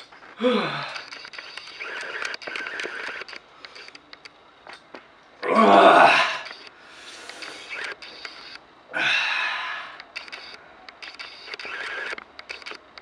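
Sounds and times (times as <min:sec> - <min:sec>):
man groaning: 0:00.4 - 0:01.0, 0:05.4 - 0:06.4
man breathing hard through mouth: 0:06.8 - 0:07.7.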